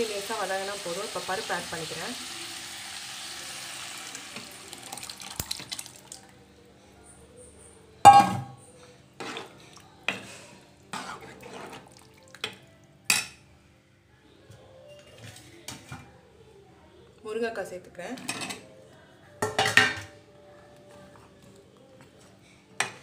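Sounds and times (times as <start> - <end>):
vegetables sizzling in oil: 0.0 - 5.6
lentils poured into pot: 2.8 - 6.2
steel ladle knocking pot: 8.1 - 8.6.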